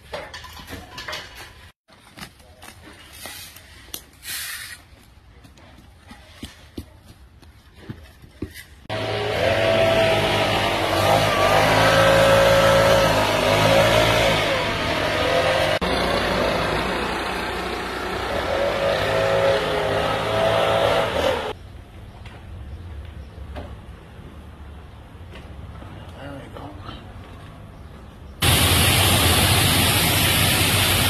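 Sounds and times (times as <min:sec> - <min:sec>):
vehicle engine revving: 0:08.9 - 0:21.6.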